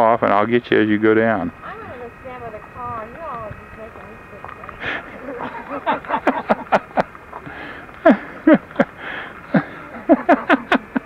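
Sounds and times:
person laughing in breathy bursts: 0:04.8 - 0:11.0.

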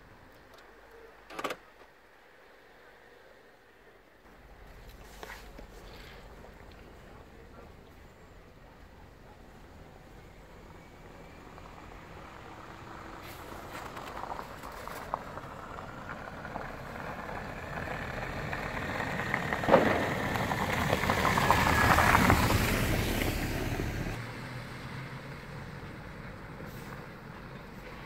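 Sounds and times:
car driving past: 0:10.1 - 0:28.0.

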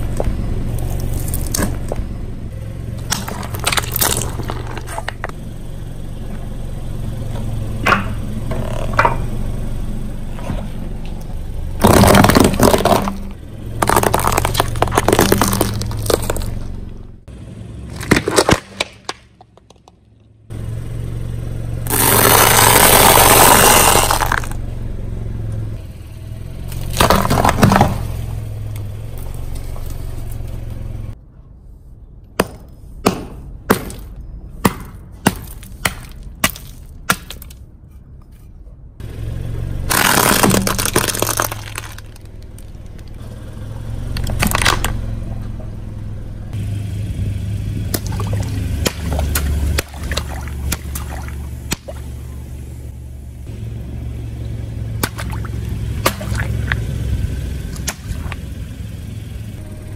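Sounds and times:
car engine running: 0:00.0 - 0:31.2, 0:33.4 - 0:59.9
sharp cracks: 0:03.0 - 0:05.3, 0:17.9 - 0:20.0, 0:21.9 - 0:24.6, 0:39.9 - 0:43.2, 0:44.1 - 0:45.0, 0:47.9 - 0:52.2, 0:55.0 - 0:56.8, 0:57.7 - 0:58.5
tyre crushing food: 0:03.0 - 0:05.3, 0:11.8 - 0:16.6, 0:17.9 - 0:19.8, 0:26.8 - 0:28.1, 0:39.9 - 0:42.6.

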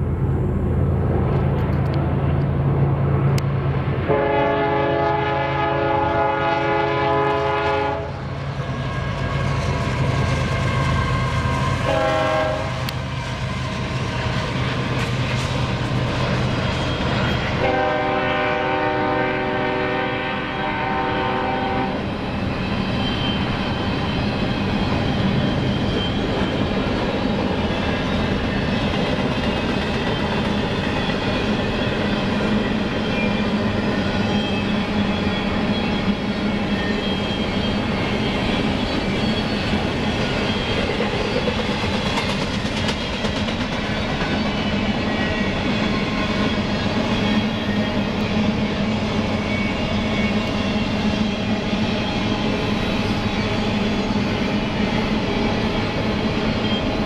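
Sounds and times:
train cars rolling on rails: 0:00.0 - 0:57.0
locomotive horn blasts: 0:04.1 - 0:08.2, 0:11.8 - 0:12.9, 0:17.6 - 0:22.0.

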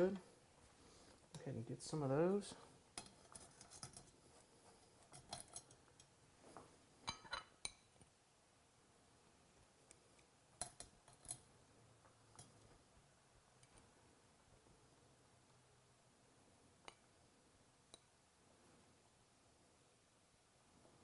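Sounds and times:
metal utensil clinking on dishes: 0:05.1 - 0:05.8.

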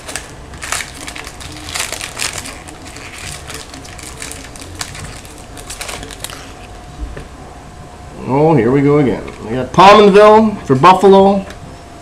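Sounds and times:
foil wrapper crinkling and tearing: 0:00.0 - 0:06.8.

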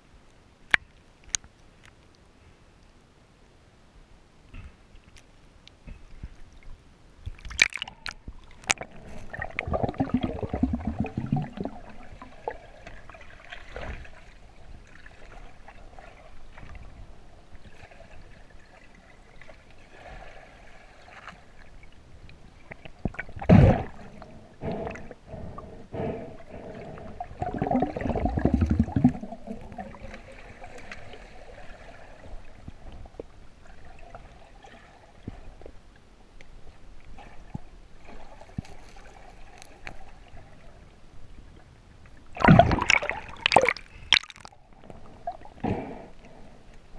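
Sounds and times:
underwater gurgling and sloshing: 0:04.6 - 0:46.9
bubbling rushes: 0:07.5 - 0:13.2, 0:26.6 - 0:30.8, 0:42.4 - 0:44.6.

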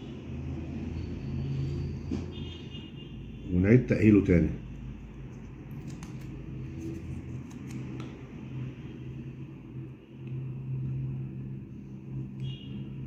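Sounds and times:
steady low hum: 0:04.5 - 0:13.0.

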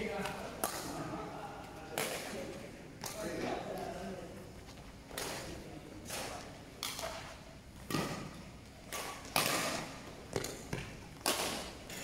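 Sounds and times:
racquets striking shuttlecock: 0:00.1 - 0:01.2, 0:05.1 - 0:12.0.

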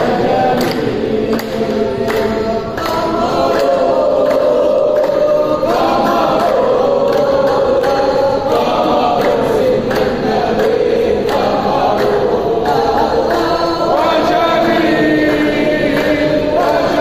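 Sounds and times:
men chanting in unison: 0:00.0 - 0:17.0.

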